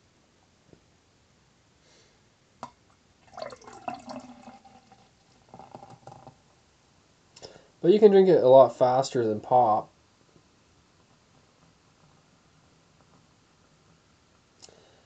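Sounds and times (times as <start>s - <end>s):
beer glugging and splashing: 3.2s - 6.3s.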